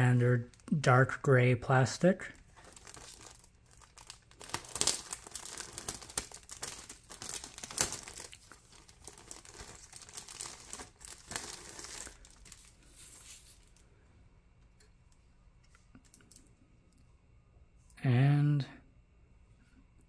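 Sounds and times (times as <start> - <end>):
plastic bag crinkling: 2.3 - 13.8.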